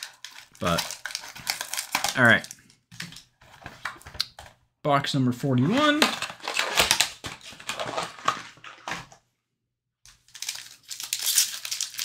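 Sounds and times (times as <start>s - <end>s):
foil wrapper crinkling and tearing: 0.0s - 2.7s, 10.3s - 12.0s.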